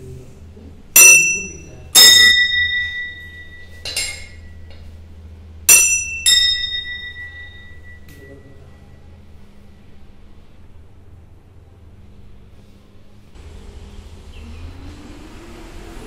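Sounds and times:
brass bells clanging: 1.0s - 4.6s, 5.7s - 8.4s.

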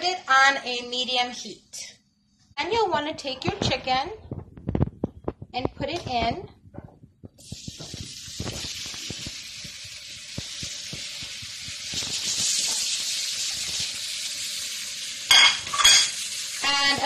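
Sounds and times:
chicken sizzling in hot oil: 7.4s - 17.0s.

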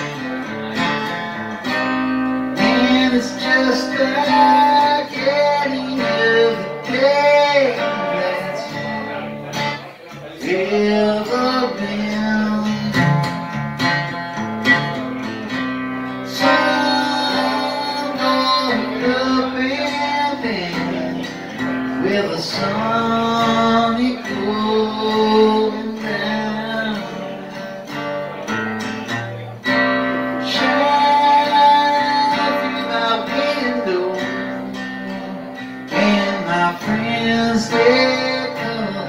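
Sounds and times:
man singing: 0.0s - 13.5s, 15.5s - 28.0s, 30.3s - 39.0s
acoustic guitar strumming: 0.0s - 39.0s.

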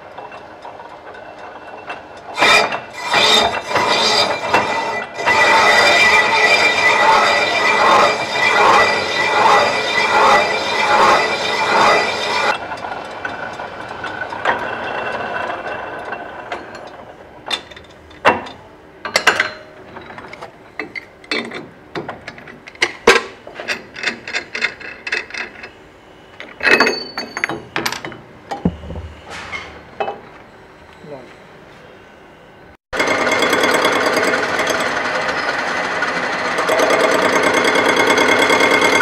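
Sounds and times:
lathe tool screeching on metal: 2.3s - 13.0s
metal clinks and knocks: 26.4s - 29.2s
lathe running down: 33.0s - 39.0s.

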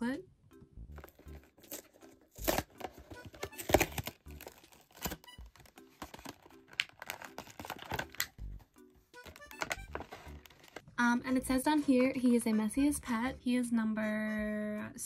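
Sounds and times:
plastic packaging crackling: 1.0s - 8.4s, 9.2s - 10.8s.

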